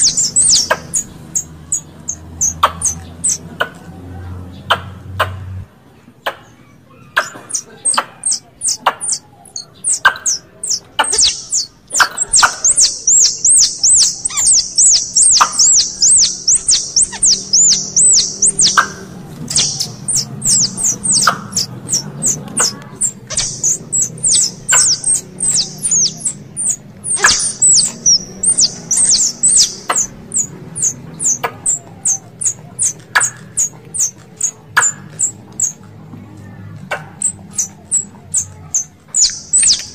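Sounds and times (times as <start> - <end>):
squirrel calls high chirps: 0.0 - 3.4, 7.0 - 35.8, 36.9 - 39.9
sharp clicks: 7.2 - 36.0, 36.7 - 39.9
low hum: 10.7 - 33.0.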